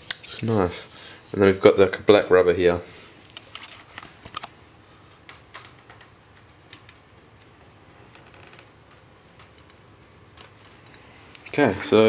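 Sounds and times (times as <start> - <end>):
hands tapping laptop: 5.2 - 7.5.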